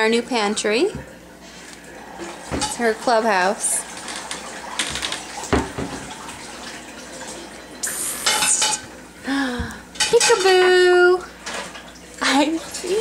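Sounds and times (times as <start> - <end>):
clattering and rustling at cabinet: 2.2 - 6.4.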